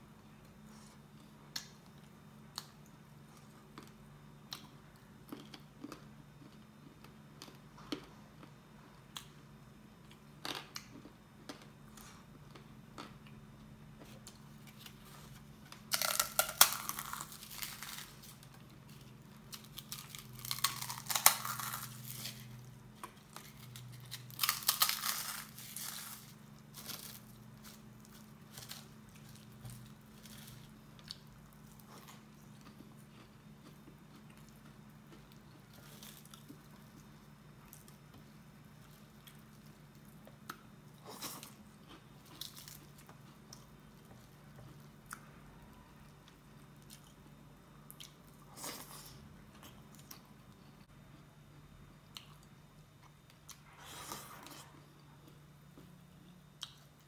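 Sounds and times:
crunchy snack being chewed: 1.6s - 8.5s, 14.0s - 50.6s.

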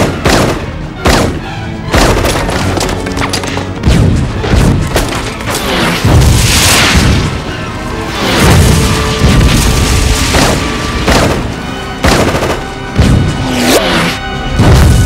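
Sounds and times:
dramatic orchestral score: 0.0s - 15.0s
loud rushing surge of avalanche: 5.8s - 7.4s
heavy booms and crashing rumble: 6.0s - 7.5s.

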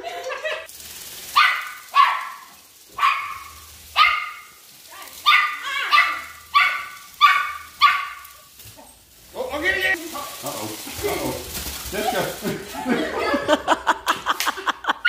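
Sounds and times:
small dog barking: 1.3s - 8.6s.

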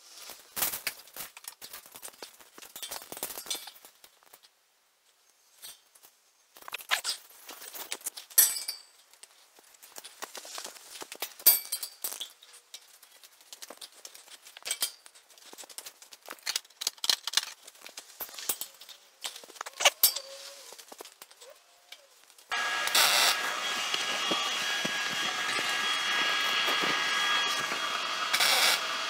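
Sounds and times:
metal tubing and clamps clinking: 8.2s - 9.1s, 11.4s - 12.9s, 13.5s - 15.2s
loud steady machine noise: 22.5s - 29.0s.

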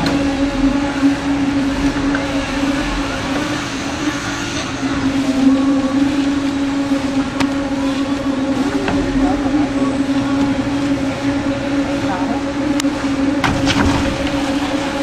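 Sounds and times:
small engine humming: 0.0s - 15.0s.

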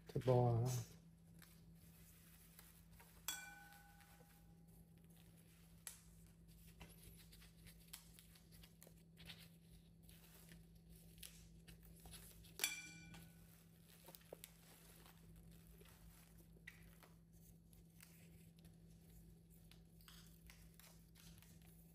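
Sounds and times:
sharp ringing clink: 3.3s - 4.0s.

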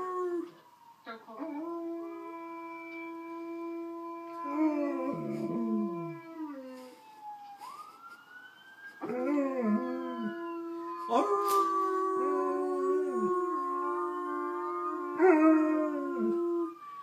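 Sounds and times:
dogs howling: 3.7s - 6.5s.

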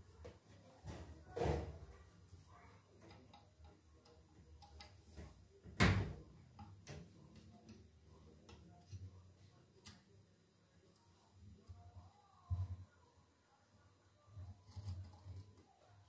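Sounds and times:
small clicks and ticks of wiring: 3.0s - 5.0s.

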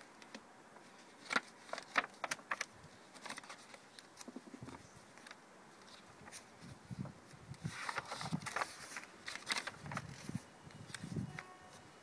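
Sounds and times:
paper pages crackling and rustling: 0.2s - 11.2s.

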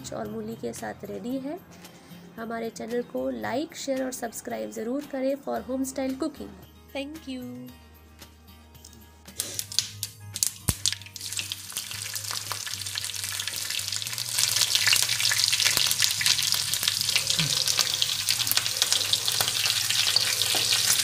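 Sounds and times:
dense sizzling and crackling: 9.3s - 21.0s.

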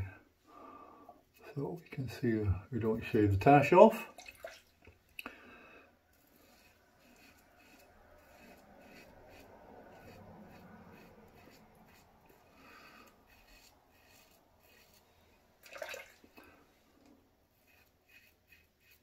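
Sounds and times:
razor scraping stubble: 6.2s - 15.2s, 17.5s - 19.0s.

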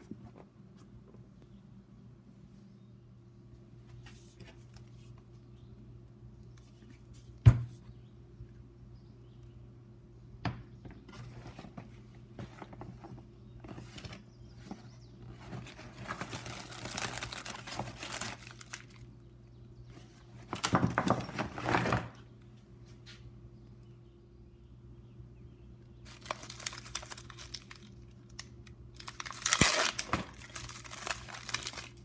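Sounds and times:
cardboard packaging rustling: 11.2s - 19.1s, 26.0s - 28.4s, 29.0s - 32.0s.

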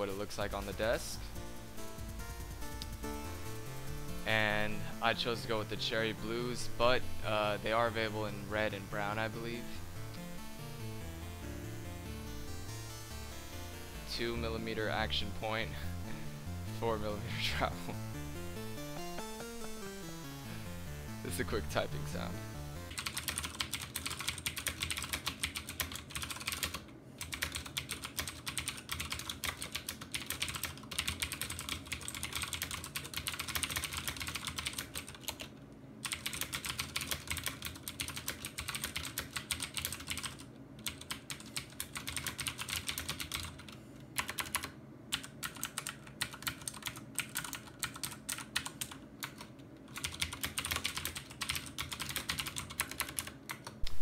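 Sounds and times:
mechanical keyboard typing: 21.1s - 54.0s.

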